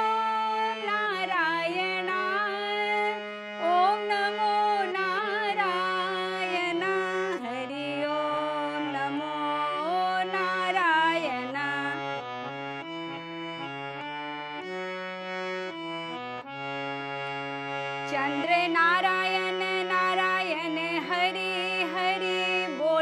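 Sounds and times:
woman singing: 0.0s - 12.0s, 18.0s - 23.0s
harmonium playing: 0.0s - 23.0s.

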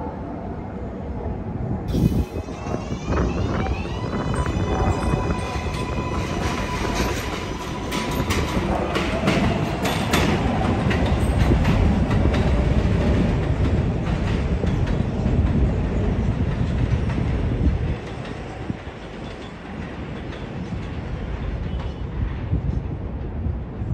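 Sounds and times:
steady train rumble: 0.0s - 23.9s
train wheels clacking over rail joints: 4.9s - 22.0s.

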